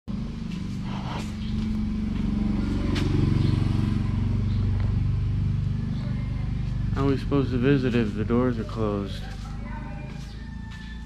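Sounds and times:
vehicle engine running: 0.1s - 11.0s.

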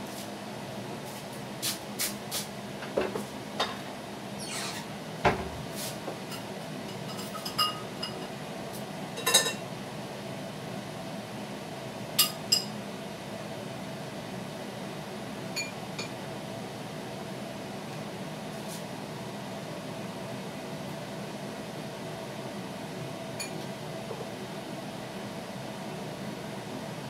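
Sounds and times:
dishes and cutlery clinking: 6.3s - 8.3s, 9.2s - 9.6s.

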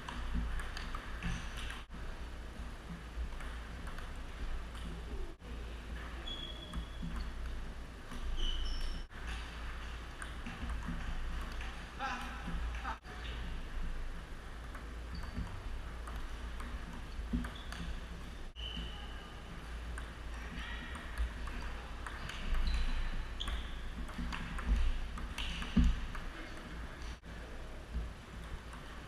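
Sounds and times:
table tennis ball clicking: 0.0s - 1.8s, 14.6s - 18.1s, 20.9s - 26.3s
steady low hum: 0.0s - 29.0s.

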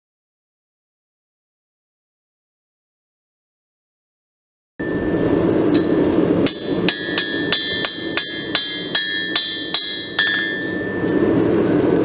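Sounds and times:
hammer striking steel on anvil: 4.8s - 11.4s.

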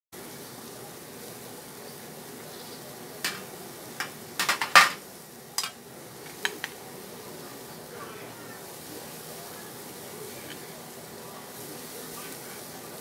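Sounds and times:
chicken sizzling on grill: 0.1s - 13.0s
sharp pops and clicks: 3.2s - 4.8s.

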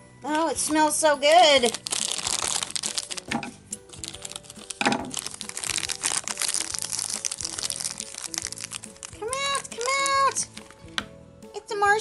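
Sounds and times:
light background music: 0.0s - 12.0s
foil wrapper crackling: 1.4s - 10.8s.

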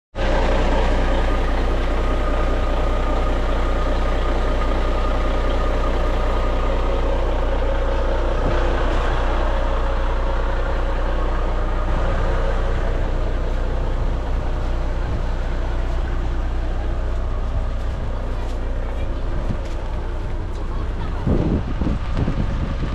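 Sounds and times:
diesel truck engine idling: 0.2s - 22.9s.

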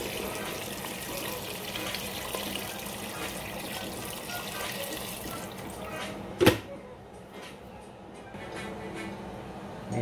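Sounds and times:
water pouring into a pot: 0.0s - 5.7s.

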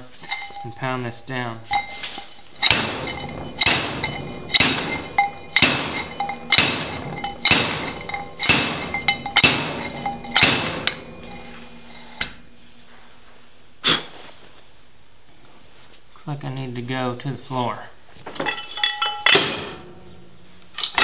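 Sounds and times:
ringing metal-on-metal strikes: 0.0s - 13.8s, 18.4s - 21.0s.

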